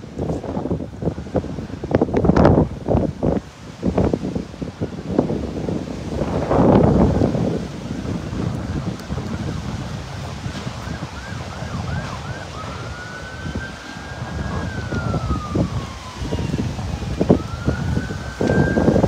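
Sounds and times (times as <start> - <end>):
wind buffeting microphone: 0.0 - 19.0
emergency vehicle siren: 4.2 - 19.0.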